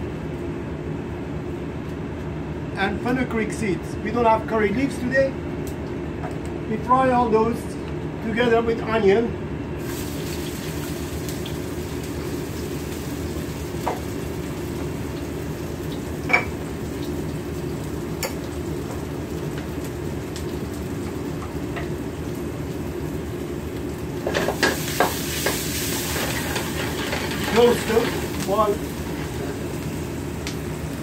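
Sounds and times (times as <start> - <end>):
gas burner rush: 9.8 - 31.0
onion and spices sizzling in oil: 9.8 - 31.0.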